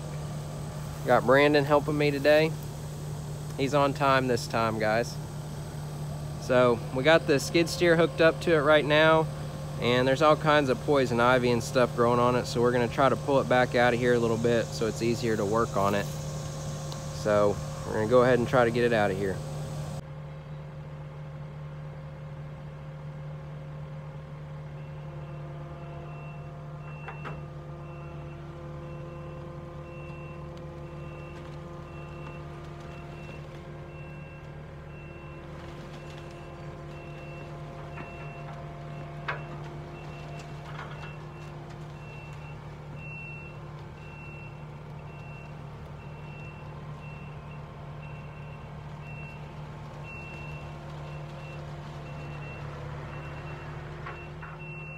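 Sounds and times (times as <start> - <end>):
skid steer engine running: 0.0 - 54.9
reversing alarm beeping: 24.7 - 54.9.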